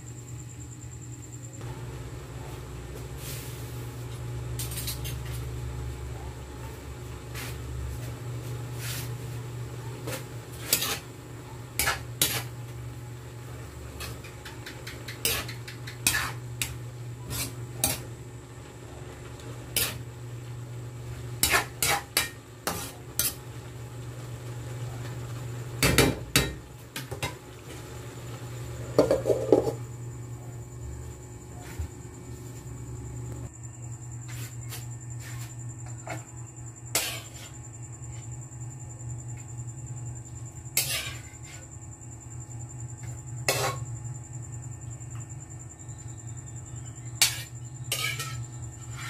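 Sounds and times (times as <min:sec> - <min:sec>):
metal spatula scraping wok: 0:10.0 - 0:11.1, 0:11.7 - 0:12.6, 0:13.9 - 0:18.1, 0:19.4 - 0:20.1, 0:21.0 - 0:23.4, 0:36.9 - 0:37.6, 0:40.8 - 0:41.7, 0:43.4 - 0:43.9, 0:47.2 - 0:49.0.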